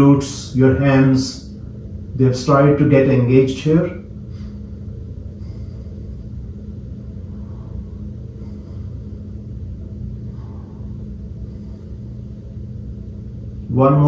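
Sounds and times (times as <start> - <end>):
low hum: 0.0 - 14.0
low rumble: 0.0 - 14.0
slow breaths: 4.1 - 13.7.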